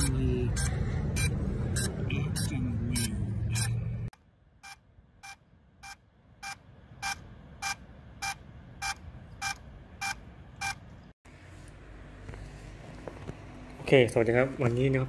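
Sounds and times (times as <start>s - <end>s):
drone short beeps: 0.0s - 3.9s.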